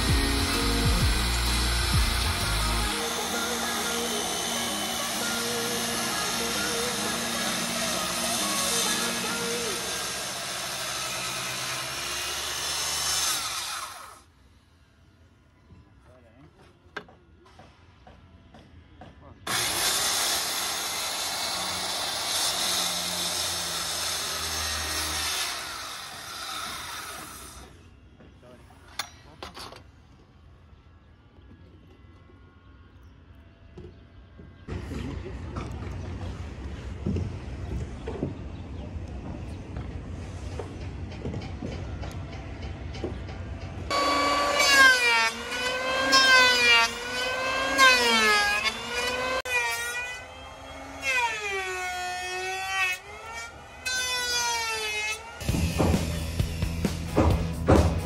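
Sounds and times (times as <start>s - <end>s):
circular saw cutting wood: 0.0s - 14.3s, 19.5s - 28.0s, 43.8s - 58.0s
timber knocking: 55.5s - 58.0s.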